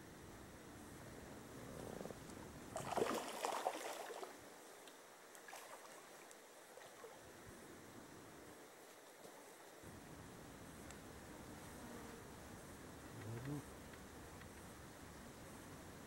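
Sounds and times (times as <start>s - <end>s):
faint steady background: 0.0s - 16.0s
duck splashing on water: 2.8s - 4.3s.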